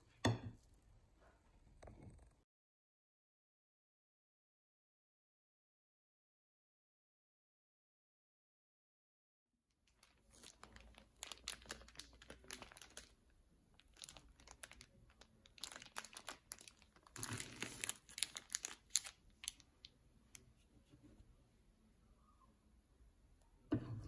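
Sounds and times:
plastic packet crinkling: 9.9s - 20.4s.

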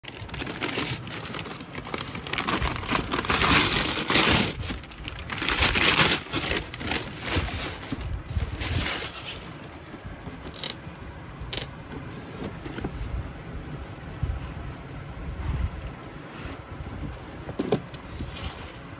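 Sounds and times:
paper bag tearing and crinkling: 0.0s - 9.7s
box handling: 0.1s - 10.8s, 11.8s - 13.0s
cardboard box sliding: 17.6s - 18.9s.

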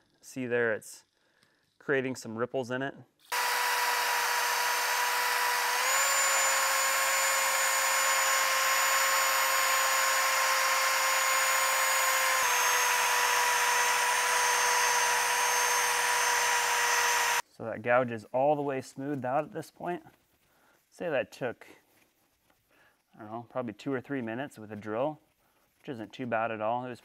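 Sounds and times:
drill motor whine: 3.3s - 17.4s.

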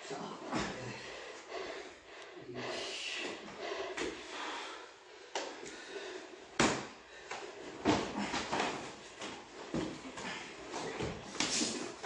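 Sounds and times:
knocks and shuffling on floor: 6.6s - 12.0s.

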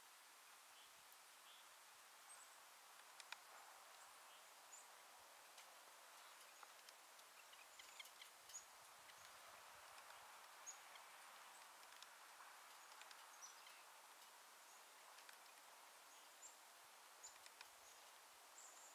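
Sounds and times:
small birds chirping: 0.6s - 18.9s
soft ticks: 2.9s - 4.1s, 5.5s - 14.4s, 15.1s - 15.7s, 17.2s - 18.1s.

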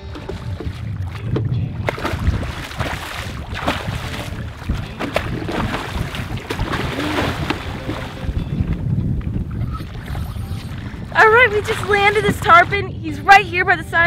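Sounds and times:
fish splashing water: 0.0s - 8.5s
wind buffeting microphone: 0.0s - 14.0s.

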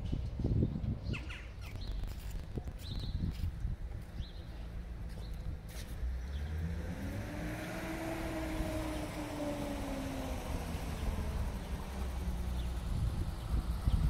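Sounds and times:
car passing by: 5.7s - 14.0s.

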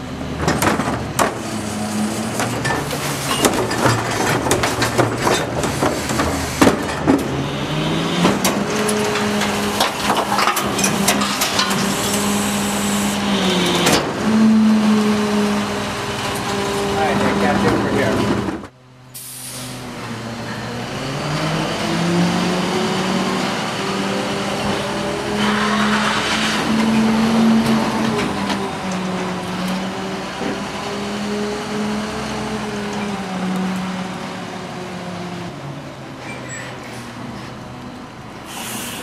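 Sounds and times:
garbage truck diesel engine: 0.0s - 39.0s
brief hiss: 19.2s - 19.8s, 38.5s - 39.0s.

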